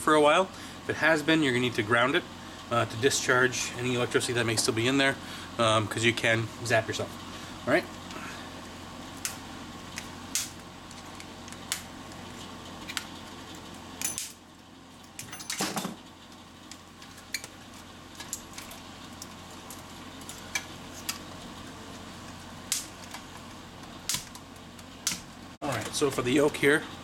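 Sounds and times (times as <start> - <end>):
steady low hum: 0.0 - 27.0
wire cutters snipping wires: 9.2 - 11.9, 24.0 - 26.3
tools clinking on metal: 14.0 - 14.4.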